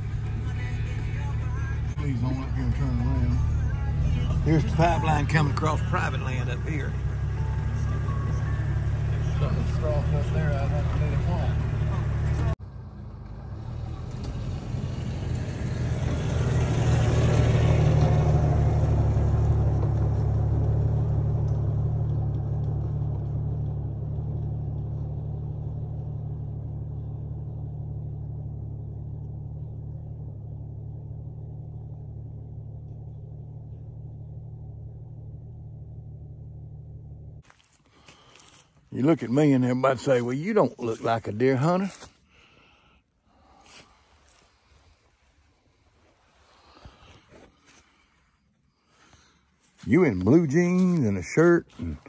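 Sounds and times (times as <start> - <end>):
vehicle driving past on dirt: 0.0 - 52.0.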